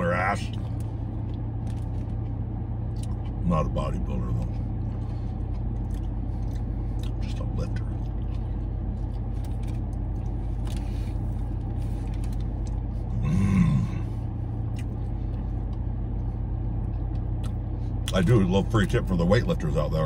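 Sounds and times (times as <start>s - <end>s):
car engine idling hum: 0.0s - 20.0s
chewing clicks: 5.5s - 10.9s, 16.9s - 18.2s.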